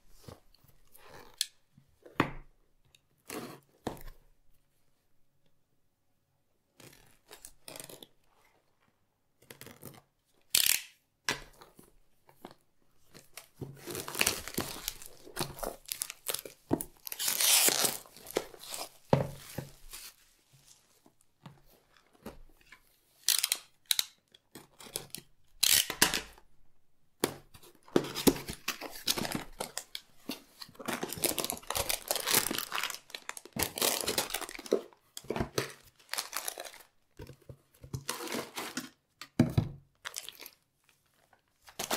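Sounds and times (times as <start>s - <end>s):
plastic bags crinkling: 13.8s - 20.9s, 28.5s - 37.0s.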